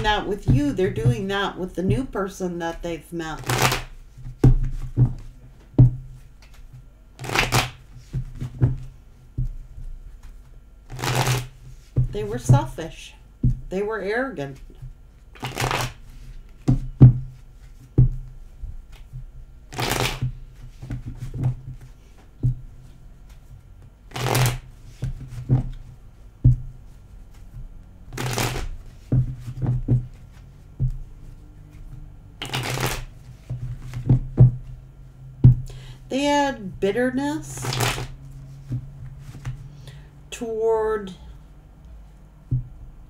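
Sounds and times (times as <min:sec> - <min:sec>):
cards shuffling: 0:03.4 - 0:05.3, 0:06.4 - 0:08.9, 0:10.2 - 0:12.0, 0:14.6 - 0:16.8, 0:19.7 - 0:22.3, 0:24.1 - 0:25.9, 0:27.2 - 0:30.7, 0:31.6 - 0:34.2, 0:37.6 - 0:39.6
cards clicking and tapping: 0:31.7 - 0:34.5.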